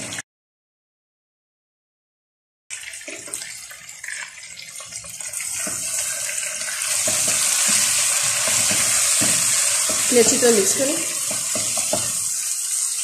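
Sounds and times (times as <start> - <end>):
chicken sizzling in a pan: 3.0 - 13.0
spatula knocking and scraping: 7.0 - 12.3.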